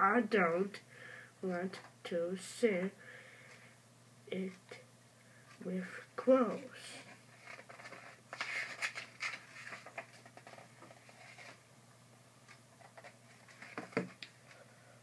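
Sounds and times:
book pages rustling: 7.0s - 11.6s, 12.4s - 14.3s.

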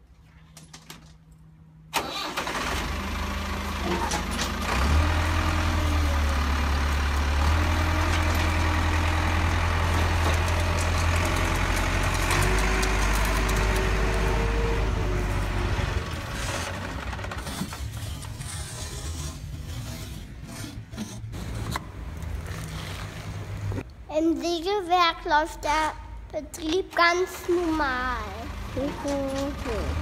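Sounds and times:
vehicle engine starting and running: 1.8s - 20.6s, 26.6s - 30.0s.

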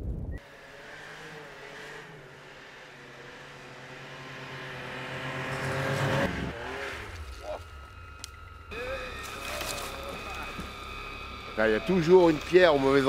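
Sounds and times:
snowmobile engines running: 0.4s - 13.0s
low engine rumble: 5.6s - 13.0s.

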